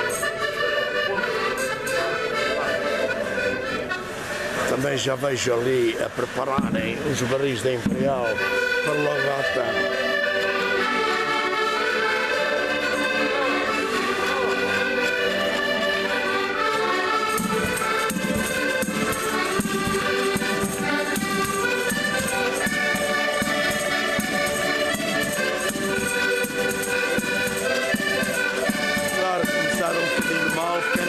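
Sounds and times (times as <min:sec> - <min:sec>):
button accordions playing folk tune: 0:00.0 - 0:31.0
bass drum beating: 0:06.6 - 0:07.0.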